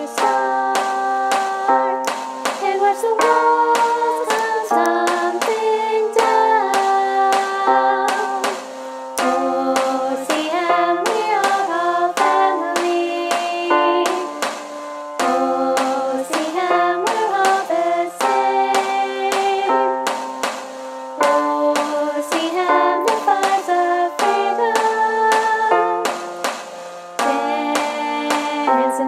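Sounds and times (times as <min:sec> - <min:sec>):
people singing in harmony: 0:00.0 - 0:29.0.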